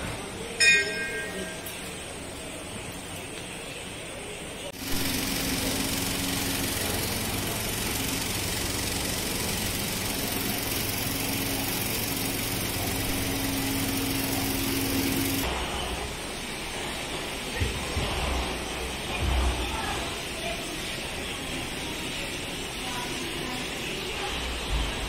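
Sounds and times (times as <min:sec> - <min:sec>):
motor humming and whirring: 0:04.8 - 0:15.5.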